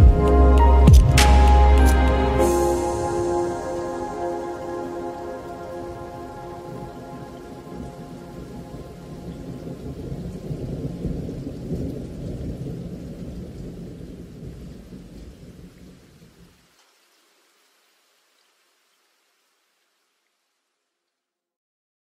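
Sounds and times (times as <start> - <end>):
rolling thunder: 0.0 - 16.0
rain: 0.0 - 21.4.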